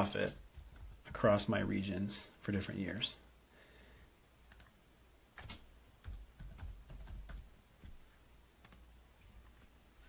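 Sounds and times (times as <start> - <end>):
typing on computer keyboard: 0.3 - 1.2, 5.4 - 7.5.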